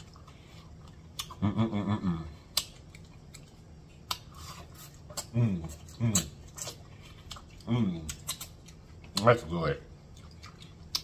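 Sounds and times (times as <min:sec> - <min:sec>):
person humming mmm: 0:01.2 - 0:02.6
wet mouth clicks and smacks: 0:02.5 - 0:04.3, 0:10.2 - 0:11.0.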